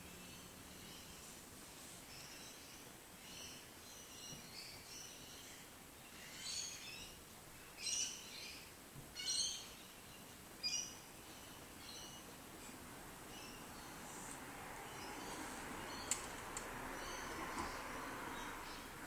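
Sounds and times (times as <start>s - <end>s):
faint outdoor background noise: 0.0s - 19.0s
birds chirping: 13.2s - 19.0s.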